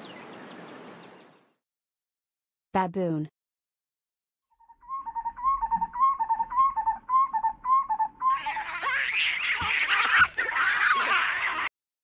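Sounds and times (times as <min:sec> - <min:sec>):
shrill din of baboons: 0:08.3 - 0:11.7.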